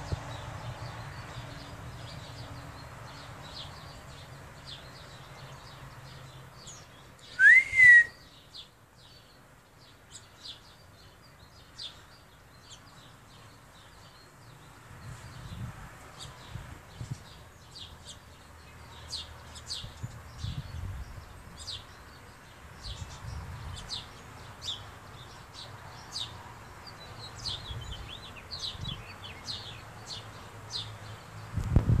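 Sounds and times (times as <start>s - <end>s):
loud whistled bird note: 7.4s - 8.2s.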